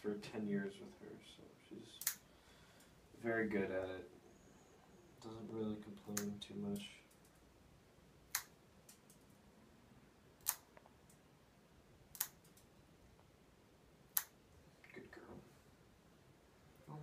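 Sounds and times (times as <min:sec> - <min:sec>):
nail clippers snipping claws: 0:02.0 - 0:02.2, 0:10.4 - 0:10.7, 0:12.1 - 0:12.6.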